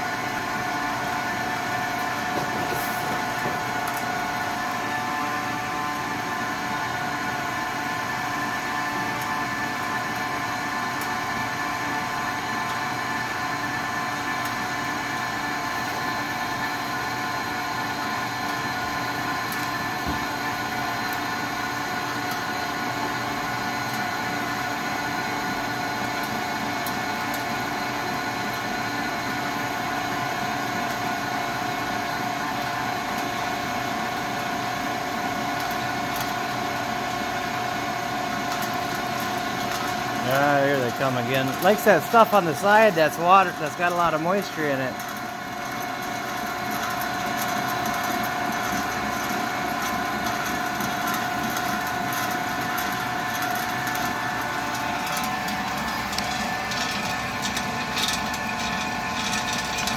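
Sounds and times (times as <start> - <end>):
pellet mill hum and whine: 0.0 - 59.9.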